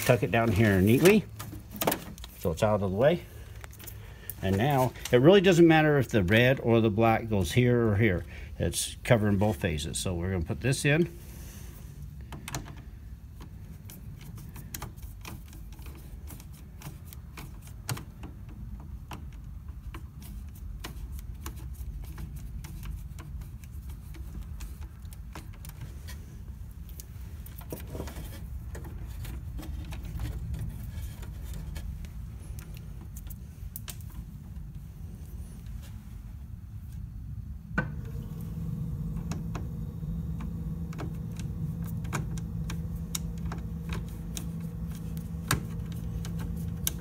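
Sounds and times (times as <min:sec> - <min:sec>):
steady low rumble: 0:28.5 - 0:47.0.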